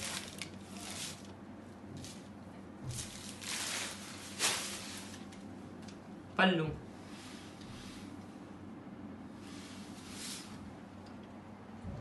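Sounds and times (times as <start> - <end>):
fabric rustling and swishing: 2.9 - 5.3, 9.4 - 10.6.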